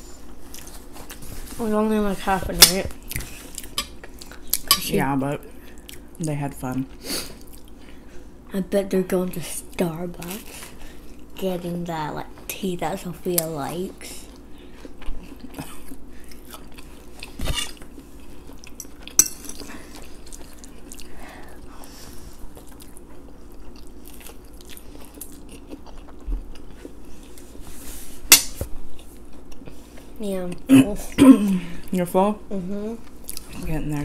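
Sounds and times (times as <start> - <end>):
chewing food: 14.2 - 27.6, 28.9 - 30.7.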